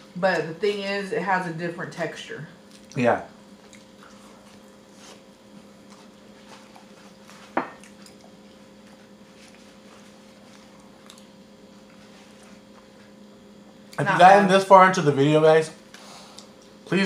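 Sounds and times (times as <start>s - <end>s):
chewing: 2.6s - 13.2s, 15.9s - 16.8s.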